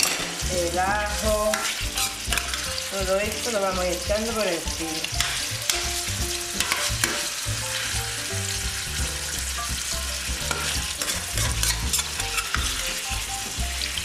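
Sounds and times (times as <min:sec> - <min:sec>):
metal spoon scraping a pan: 0:00.0 - 0:04.4, 0:05.0 - 0:08.0, 0:10.3 - 0:13.6
oil sizzling in a frying pan: 0:00.0 - 0:14.0.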